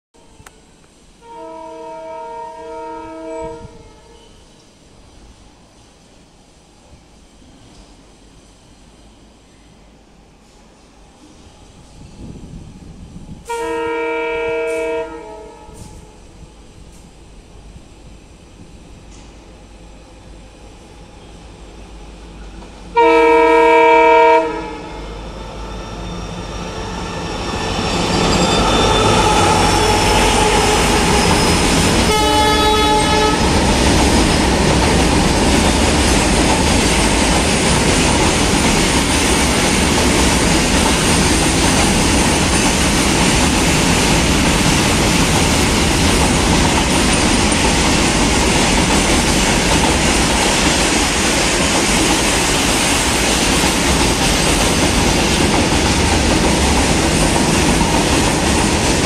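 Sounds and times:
train wheels on rails: 0.2s - 59.0s
locomotive horn blast: 1.2s - 4.4s, 13.5s - 16.2s, 22.9s - 25.0s, 29.0s - 33.6s.

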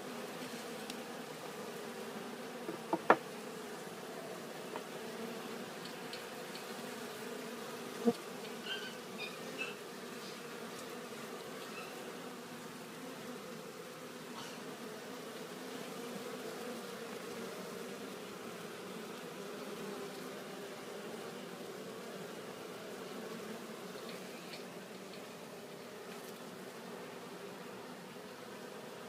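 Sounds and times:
bees buzzing: 0.0s - 29.0s
light knocks: 2.7s - 3.2s.

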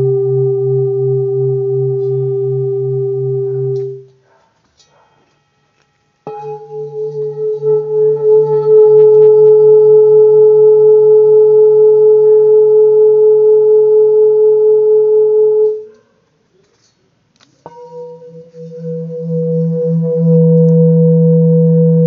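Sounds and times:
singing bowl ringing: 0.0s - 4.1s, 5.3s - 15.8s, 17.7s - 22.0s
singing bowl struck: 0.0s - 4.1s, 6.3s - 10.4s, 17.7s - 22.0s.

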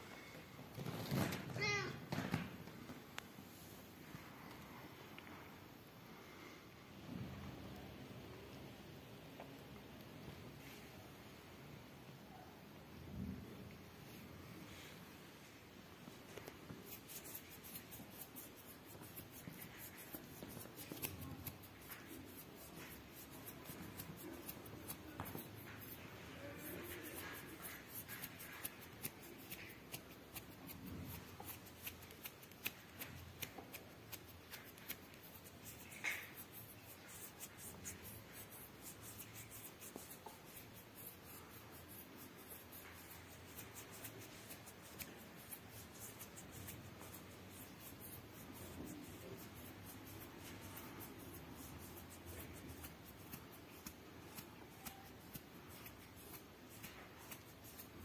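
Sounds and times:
kittens scratching fabric: 16.1s - 58.0s.

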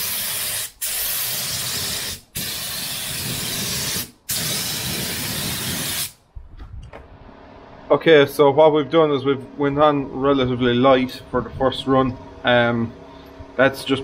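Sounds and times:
paint spray gun hissing: 0.0s - 6.2s.

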